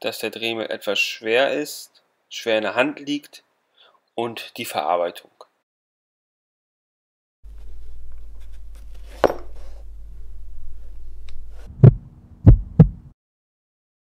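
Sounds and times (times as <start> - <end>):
low hum: 7.5 - 13.1
deep heavy thumps: 11.6 - 13.1.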